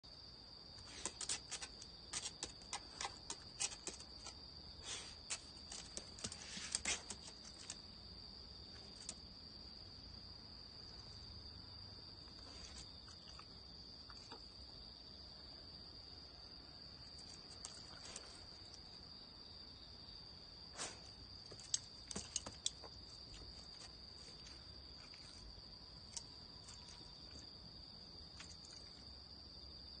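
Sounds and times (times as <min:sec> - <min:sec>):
crickets trilling: 0:00.0 - 0:30.0
dog claws tapping on tile: 0:00.8 - 0:04.4, 0:21.5 - 0:23.4.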